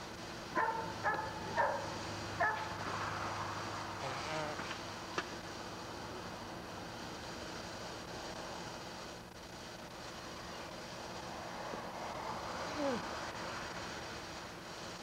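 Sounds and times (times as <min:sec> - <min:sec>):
steady buzzing drone: 0:00.0 - 0:15.0.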